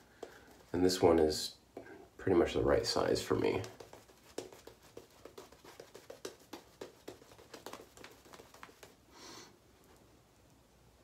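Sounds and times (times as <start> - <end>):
shaving brush squishing lather: 3.0 - 9.0.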